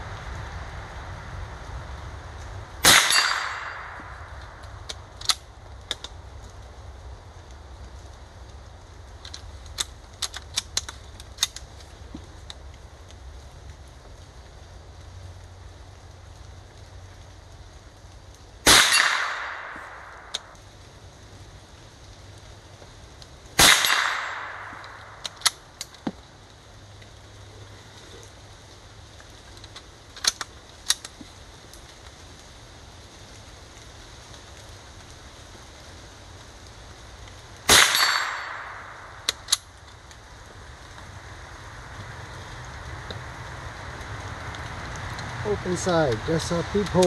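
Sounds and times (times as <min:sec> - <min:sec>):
rifle shots with echo: 0:02.8 - 0:04.6, 0:18.6 - 0:20.5, 0:23.6 - 0:25.5, 0:37.7 - 0:39.5.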